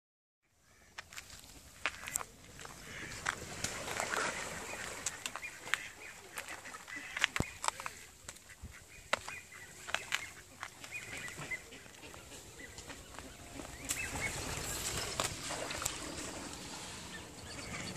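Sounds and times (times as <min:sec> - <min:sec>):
footsteps on dirt: 0:01.0 - 0:16.0
mallard ducks calling: 0:01.9 - 0:03.4, 0:04.2 - 0:14.9.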